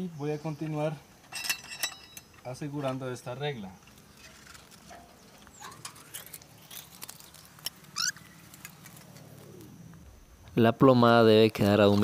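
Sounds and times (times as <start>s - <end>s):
faint low hum: 0.0s - 12.0s
clicks and scrapes on metal: 3.9s - 7.8s.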